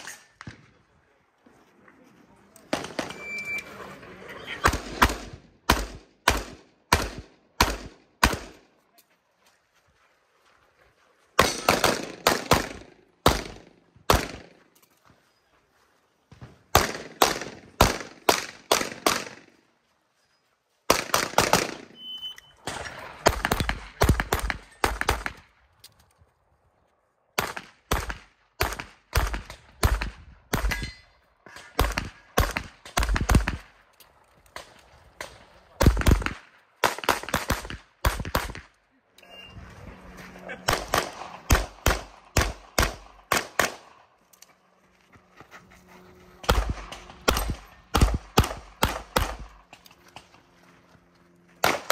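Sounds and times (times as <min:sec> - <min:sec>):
pistol shots: 0:04.6 - 0:08.6, 0:11.4 - 0:14.5, 0:16.7 - 0:19.4, 0:27.4 - 0:30.9, 0:34.6 - 0:38.7, 0:40.6 - 0:44.0, 0:46.4 - 0:49.6, 0:51.6 - 0:51.9.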